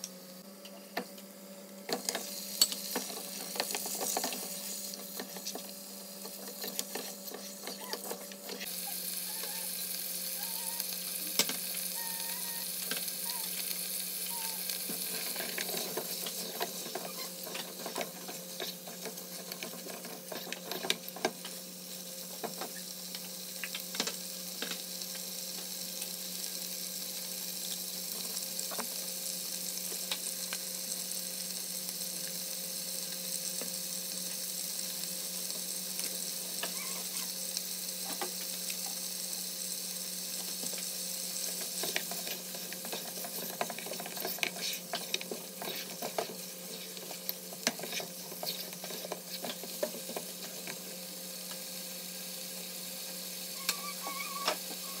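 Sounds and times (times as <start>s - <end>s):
meat and onions sizzling in oil: 1.2s - 55.0s
spatula scraping a pot: 42.8s - 49.5s.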